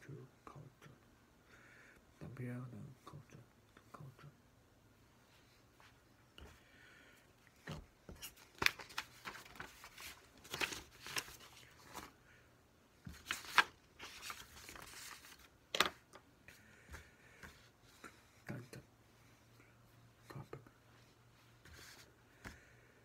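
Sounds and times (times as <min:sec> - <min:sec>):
paper rustling: 0:07.6 - 0:12.2, 0:13.0 - 0:16.2.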